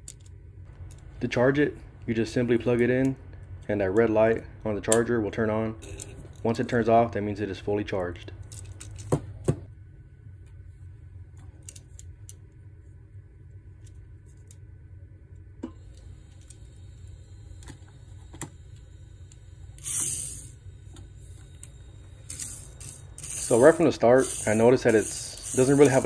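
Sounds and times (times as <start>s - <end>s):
faint clicks of toy handling: 0.0s - 1.1s, 11.4s - 12.4s
low steady background hum: 0.0s - 26.0s
toy car electric motor whirring: 19.8s - 20.6s, 21.4s - 26.0s.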